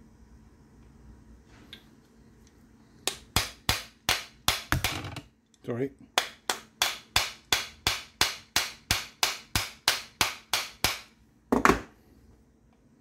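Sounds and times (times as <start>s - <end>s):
hammer tapping metal: 3.0s - 5.1s, 6.2s - 11.2s.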